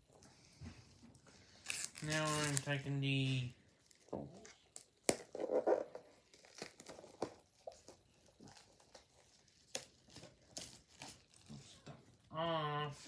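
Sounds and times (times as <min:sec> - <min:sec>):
packaging crinkling and rustling: 0:01.4 - 0:11.9.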